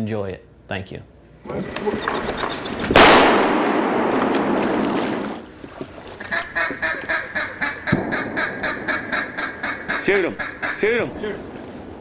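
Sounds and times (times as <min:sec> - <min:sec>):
duck quacking: 0:01.5 - 0:03.0, 0:06.2 - 0:11.2
loud blast with rushing noise: 0:02.9 - 0:04.6.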